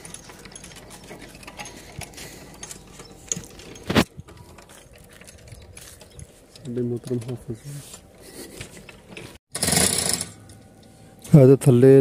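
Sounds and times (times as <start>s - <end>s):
chain hoist clicking and rattling: 0.0s - 7.5s, 8.8s - 10.7s.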